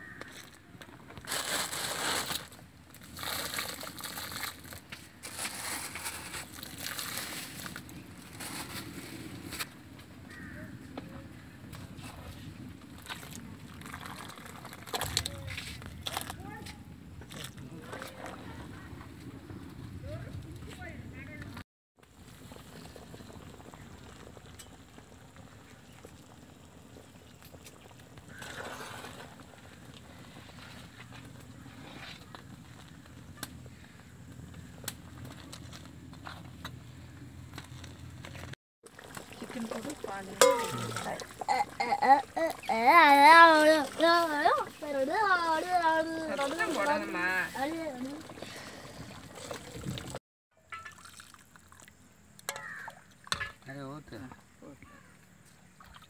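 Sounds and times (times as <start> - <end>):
curry bubbling and sloshing in pot: 11.7 - 16.3, 38.8 - 53.6
curry bubbling in a pot: 22.0 - 32.9, 38.8 - 45.0.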